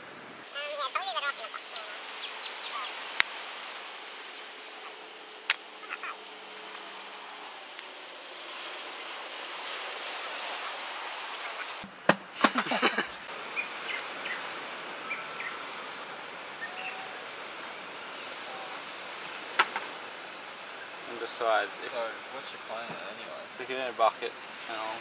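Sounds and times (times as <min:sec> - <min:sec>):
steady outdoor hiss: 0:00.0 - 0:25.0
faint bird chirps: 0:16.6 - 0:17.2.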